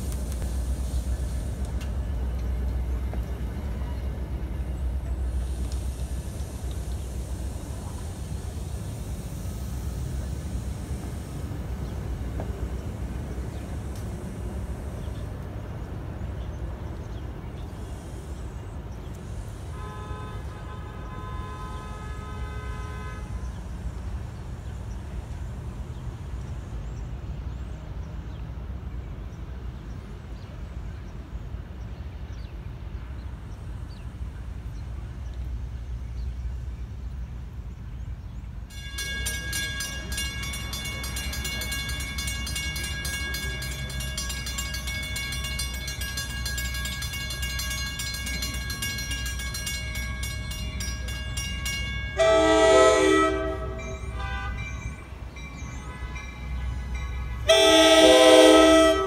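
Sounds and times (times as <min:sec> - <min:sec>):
train rumbling: 0:00.0 - 0:59.0
locomotive horn blast: 0:19.6 - 0:23.7, 0:52.0 - 0:55.1, 0:55.8 - 0:59.0
crossing warning bells ringing: 0:38.5 - 0:59.0.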